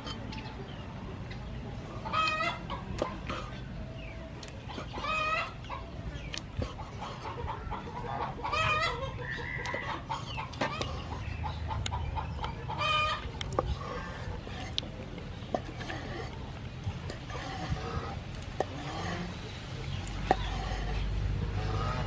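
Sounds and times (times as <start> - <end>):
chicken calling: 4.4 - 15.0.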